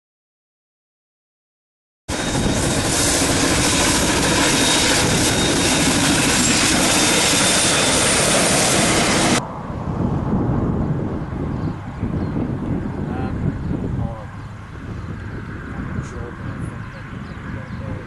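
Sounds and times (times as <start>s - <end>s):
train wheels rushing by: 2.1s - 9.4s.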